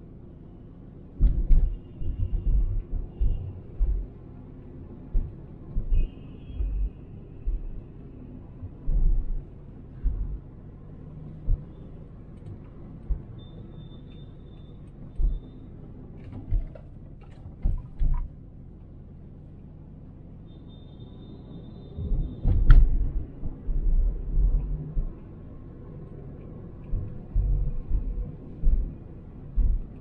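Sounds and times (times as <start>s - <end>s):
car road rumble: 0.0s - 30.0s
deep thumps from road bumps: 1.1s - 13.8s, 14.9s - 18.4s, 22.0s - 25.7s, 26.7s - 30.0s
sharp clicks and knocks: 1.2s - 7.8s, 16.1s - 18.3s, 22.2s - 25.3s.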